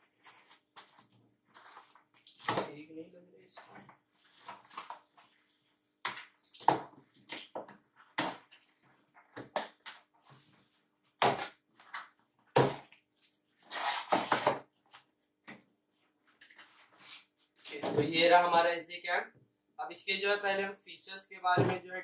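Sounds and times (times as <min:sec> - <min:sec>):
cardboard and tape tearing: 0:13.6 - 0:14.6.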